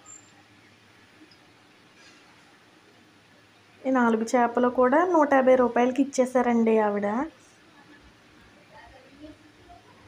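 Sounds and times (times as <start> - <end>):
faint high-pitched chirp: 0.0 - 0.8.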